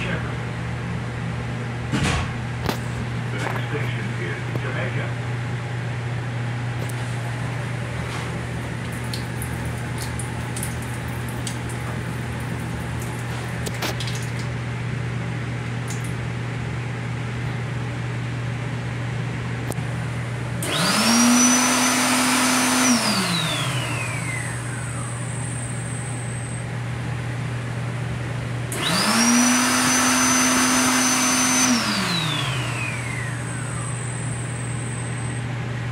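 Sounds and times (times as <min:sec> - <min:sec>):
hand dryer blowing: 0:20.6 - 0:25.6, 0:28.7 - 0:34.5.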